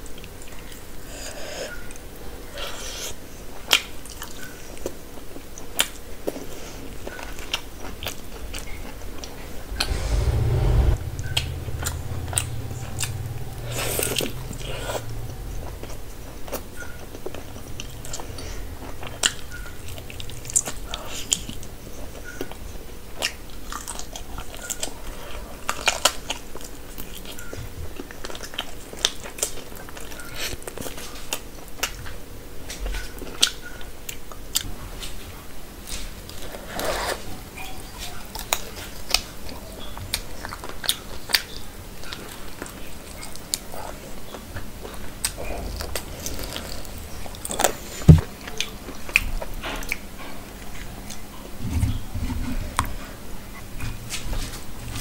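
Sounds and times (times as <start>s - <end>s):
loud thump: 9.7s - 16.4s.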